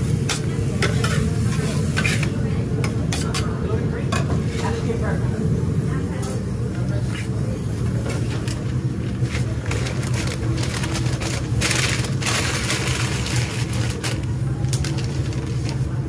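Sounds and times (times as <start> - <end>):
paper crinkling and rustling: 8.3 - 16.0.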